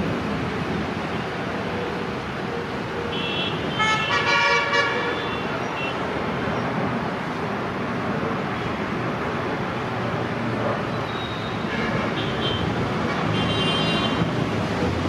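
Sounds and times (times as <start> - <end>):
locomotive horn: 3.3 - 5.4
steady rushing noise: 14.0 - 15.0.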